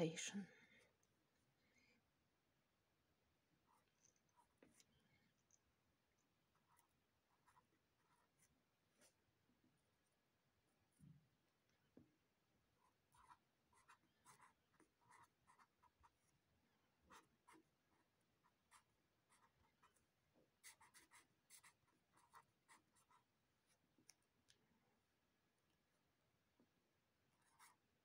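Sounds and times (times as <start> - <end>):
marker scratching on paper: 6.6 - 9.2, 12.8 - 16.3, 17.1 - 20.0, 20.6 - 23.3, 27.3 - 27.8.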